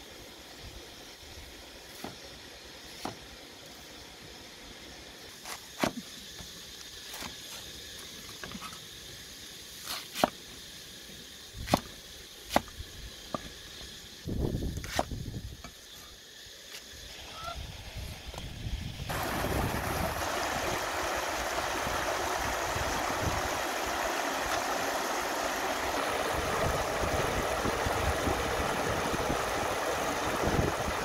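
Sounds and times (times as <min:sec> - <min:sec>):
background hiss: 0:00.0 - 0:31.0
cleaver chopping cabbage on wood: 0:11.6 - 0:11.9, 0:12.5 - 0:12.7.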